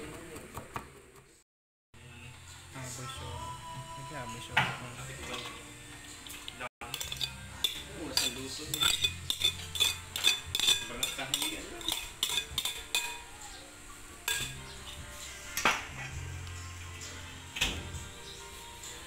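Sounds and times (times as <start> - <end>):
utensil scraping and tapping dishes: 6.2 - 13.4, 14.2 - 16.2
utensil knocking bowl: 6.8 - 13.3, 14.3 - 14.6.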